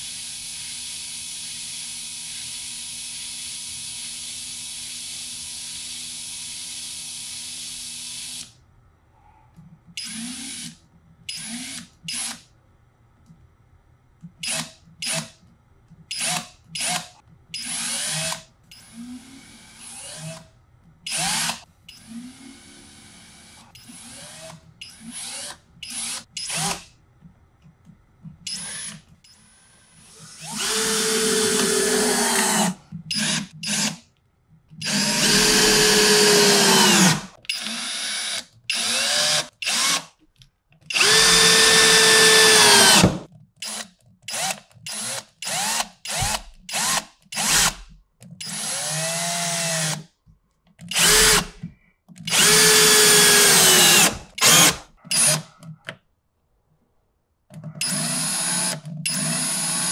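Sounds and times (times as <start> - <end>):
power drill driving screws: 21.1 - 21.6, 30.1 - 34.0, 34.8 - 40.1, 40.9 - 47.8, 48.4 - 50.0, 50.9 - 51.6, 52.3 - 55.5, 57.8 - 59.9
drill trigger blips: 34.8 - 40.0, 40.9 - 47.8, 50.9 - 51.6, 52.2 - 55.5.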